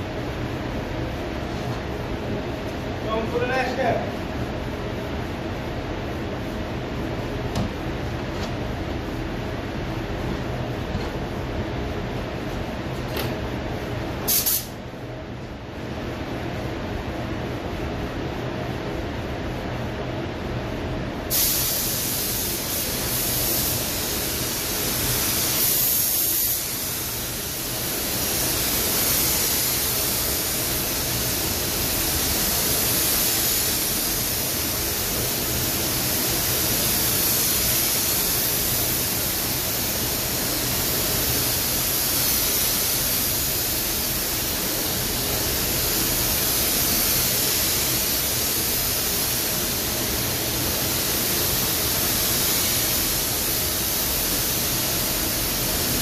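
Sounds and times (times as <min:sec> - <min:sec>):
paint spray gun hissing: 0:14.2 - 0:14.8, 0:21.3 - 0:56.0.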